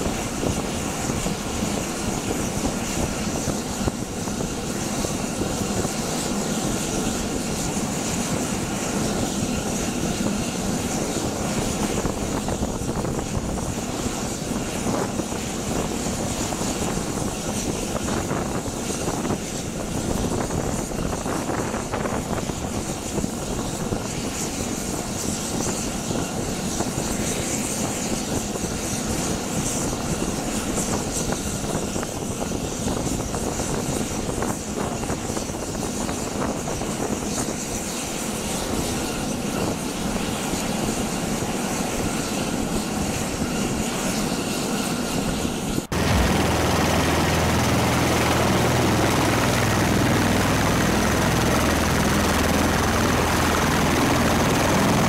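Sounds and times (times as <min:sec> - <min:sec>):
aircraft engines and rotors rushing: 0:00.0 - 0:55.0
deep engine and rotor noise: 0:37.7 - 0:55.0.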